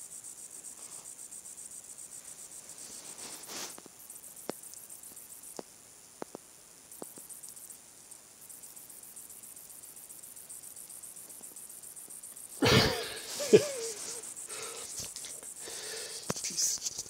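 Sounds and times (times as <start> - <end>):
man laughing harshly: 12.6 - 14.9.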